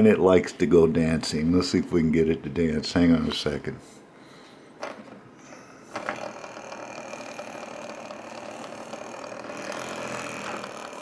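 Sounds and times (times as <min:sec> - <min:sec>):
pulse motor humming: 0:06.0 - 0:11.0.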